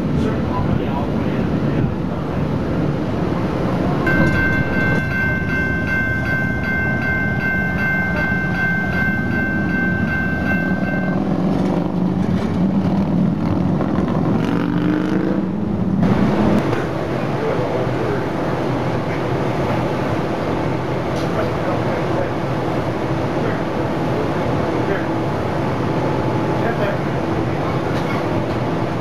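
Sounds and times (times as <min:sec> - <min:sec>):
streetcar rumbling on rails: 0:00.0 - 0:29.0
pulsing high ringing tone: 0:04.1 - 0:11.4.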